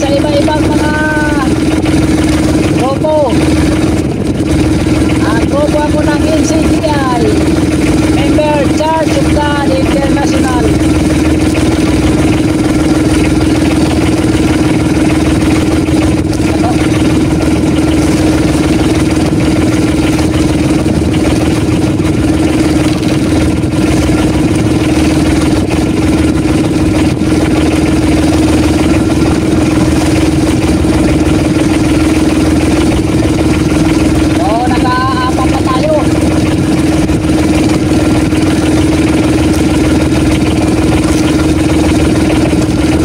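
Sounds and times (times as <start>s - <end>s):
boat engine droning: 0.0s - 43.0s.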